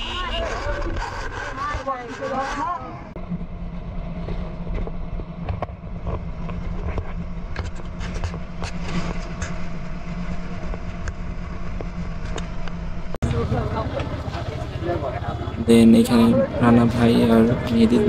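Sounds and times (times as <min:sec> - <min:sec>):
road rumble: 0:00.0 - 0:18.0
motor hum: 0:03.2 - 0:18.0
rattles and clicks from vehicle body: 0:04.2 - 0:13.2.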